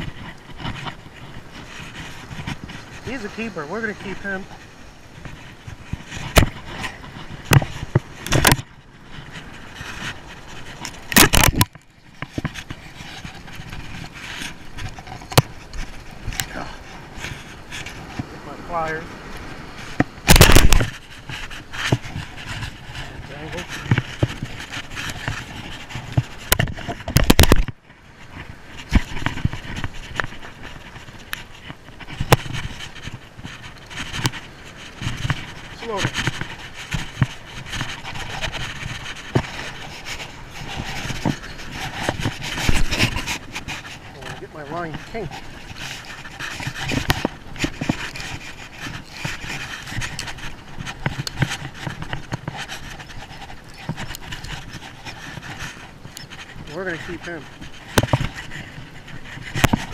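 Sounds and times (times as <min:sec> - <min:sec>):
camera rubbing against clothing: 0:00.0 - 0:59.9
fishing gear clicks and knocks: 0:00.0 - 0:59.9
wind on microphone: 0:00.0 - 0:59.9.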